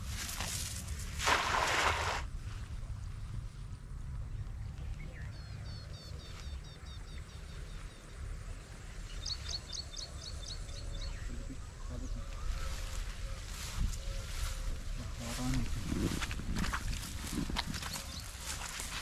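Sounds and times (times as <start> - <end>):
wind rumbling on microphone: 0.0 - 19.0
bird chirping: 4.4 - 15.5.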